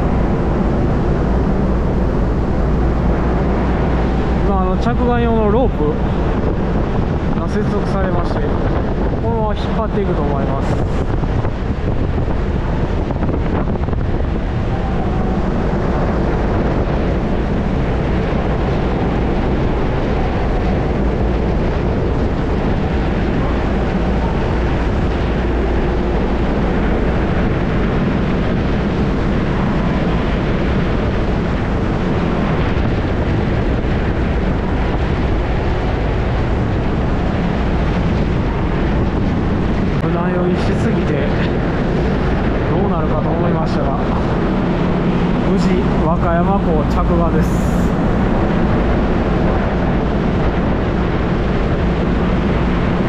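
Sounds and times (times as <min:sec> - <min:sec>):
ferry engines rumbling: 0:00.0 - 0:53.0
wind buffeting microphone: 0:00.0 - 0:53.0.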